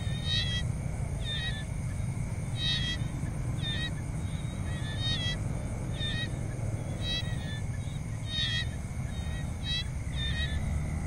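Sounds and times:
insect drone: 0.0s - 11.0s.

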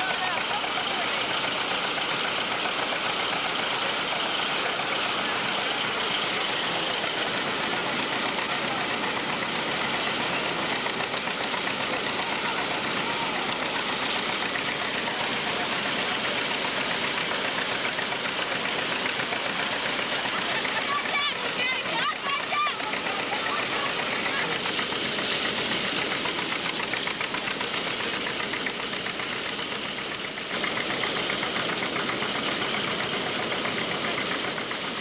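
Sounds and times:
threshing machine running: 0.0s - 35.0s.

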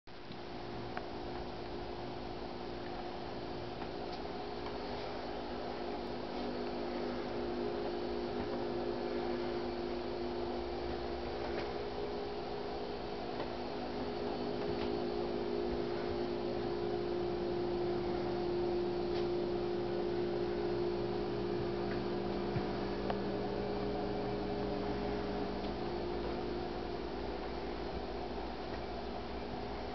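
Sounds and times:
electrical hum: 0.1s - 29.9s.

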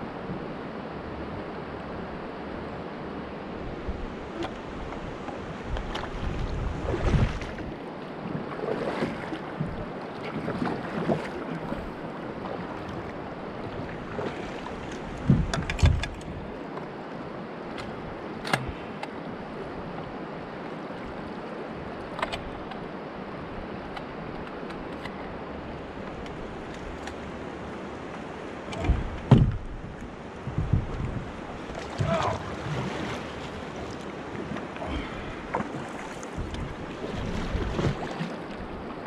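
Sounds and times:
river current rushing: 2.0s - 39.0s
paddle strokes splashing: 4.2s - 16.8s, 24.5s - 39.0s
dull knocks: 28.8s - 29.7s, 30.4s - 32.4s.

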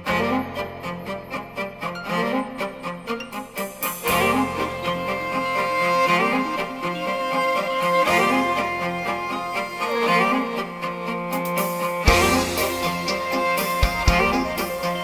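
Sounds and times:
instrumental music with held chords: 0.0s - 15.0s
low bass line: 12.1s - 15.0s.

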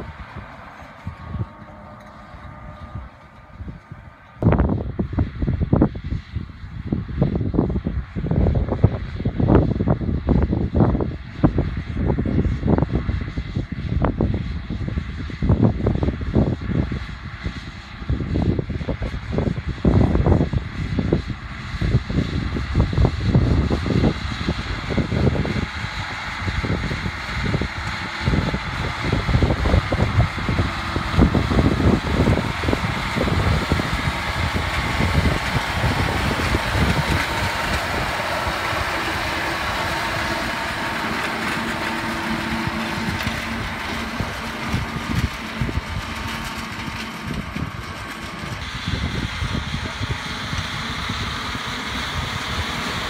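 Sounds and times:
wagon rotor whirring: 0.0s - 4.7s, 22.8s - 53.0s
tractor diesel engine under load: 0.0s - 53.0s.

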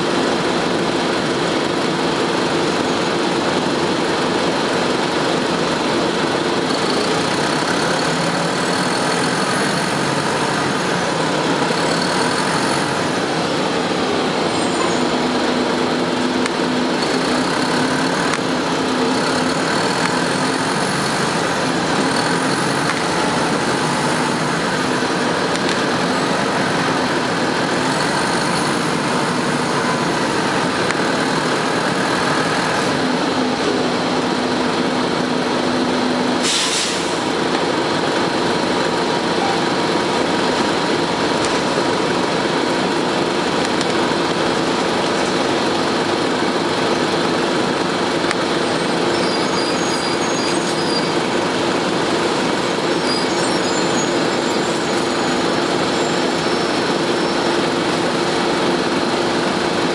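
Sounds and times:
bus diesel engine running: 0.0s - 59.9s
short air hiss: 36.4s - 37.2s.

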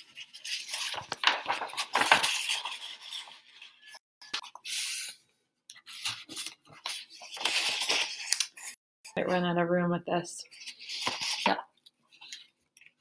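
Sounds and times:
paper rustling and sliding on table: 0.0s - 5.2s, 5.8s - 8.8s.

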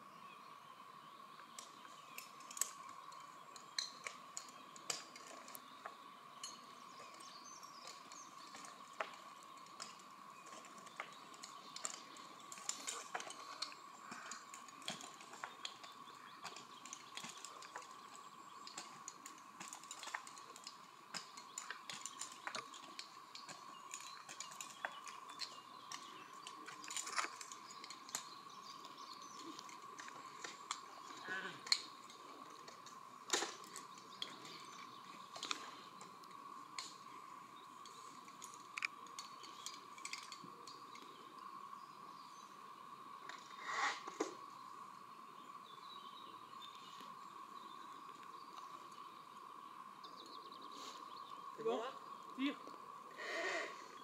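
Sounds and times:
metal climbing gear clicking: 2.1s - 5.8s, 6.4s - 37.0s.

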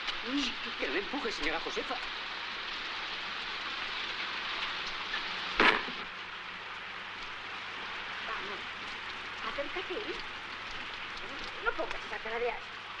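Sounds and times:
rain hissing: 0.0s - 13.0s
sharp knock: 5.6s - 6.0s.

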